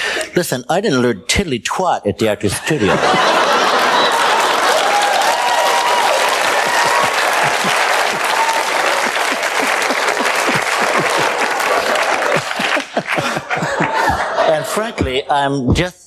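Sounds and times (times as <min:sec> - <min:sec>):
audience laughter: 0:02.6 - 0:05.5, 0:06.3 - 0:15.1
audience applauding: 0:03.0 - 0:14.9.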